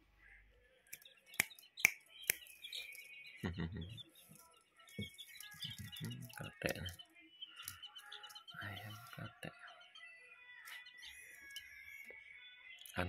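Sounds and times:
sharp clicks: 0.9 - 3.2
chicks peeping: 0.9 - 13.0
hand rustling among chicks: 1.0 - 9.2.

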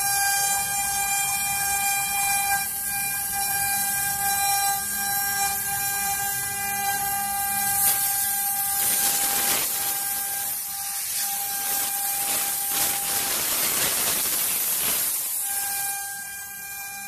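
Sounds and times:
faint machine whine: 0.0 - 17.0
steady hiss: 7.7 - 15.9.

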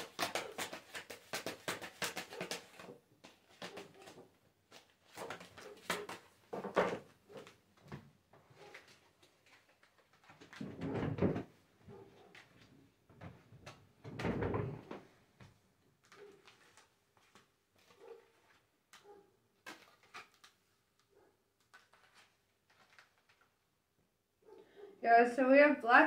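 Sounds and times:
cards tapping and sliding: 0.0 - 7.5, 19.6 - 20.6
cards shuffling: 0.0 - 7.6, 8.6 - 10.6, 19.6 - 20.7, 21.6 - 23.6.

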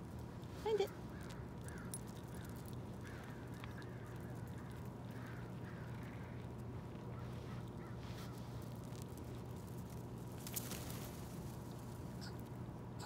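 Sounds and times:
low background hum: 0.0 - 13.0
crows cawing: 1.1 - 8.4.

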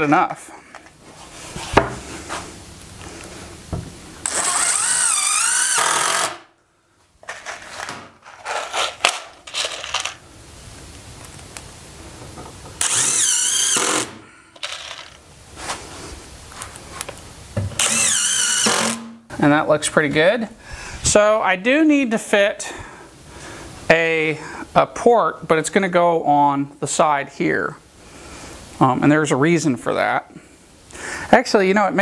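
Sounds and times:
cordless drill whining: 4.2 - 6.5, 12.8 - 15.2, 17.8 - 19.1
tools and parts clattering: 7.2 - 10.2, 14.6 - 15.2.

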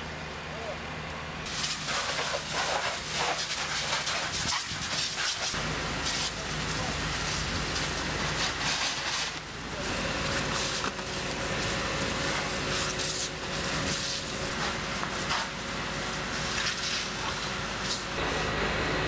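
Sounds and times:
fire cracking: 1.5 - 18.4
water hissing on fire: 1.5 - 18.4
engines humming: 9.3 - 19.0.

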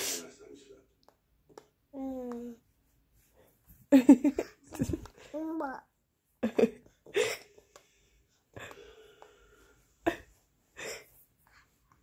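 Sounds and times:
baby drawn-out breath: 10.7 - 12.0.

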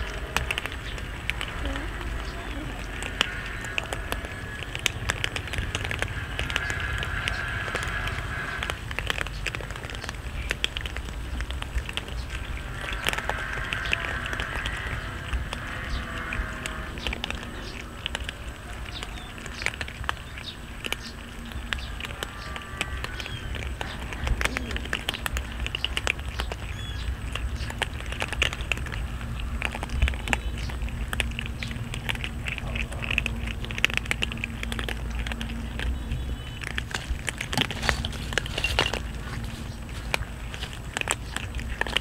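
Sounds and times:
cats crunching dry kibble: 0.0 - 42.0.

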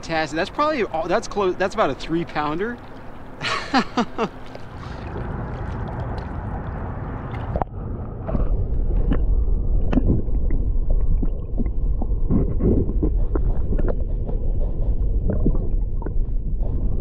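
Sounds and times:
water sloshing: 0.0 - 16.8
muffled underwater rumble: 0.0 - 17.0
underwater gurgling: 0.1 - 17.0
underwater clicks and knocks: 8.9 - 14.4.

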